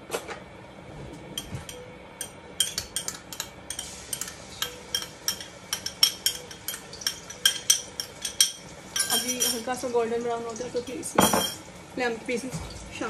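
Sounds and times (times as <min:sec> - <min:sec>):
metal spoon clinking on jar: 0:01.4 - 0:09.7, 0:11.2 - 0:11.6.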